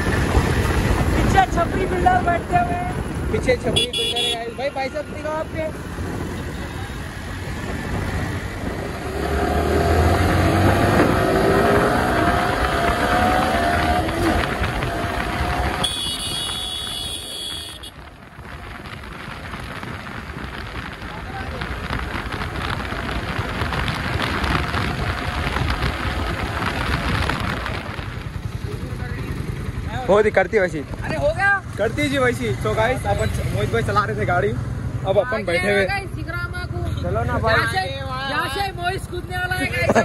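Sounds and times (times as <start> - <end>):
wind rush on microphone: 0.0 - 4.4, 5.0 - 32.7
motorcycle engine accelerating: 5.8 - 30.3.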